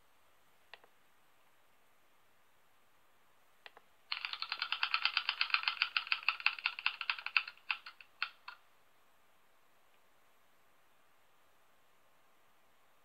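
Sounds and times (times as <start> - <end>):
spinning wheel ticking: 4.1 - 8.6.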